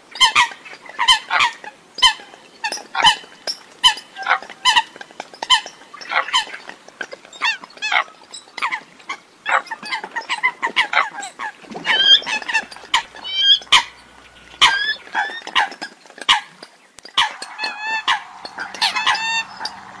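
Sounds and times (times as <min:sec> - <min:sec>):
coots honking and clicking: 0:00.2 - 0:11.1, 0:11.7 - 0:20.0.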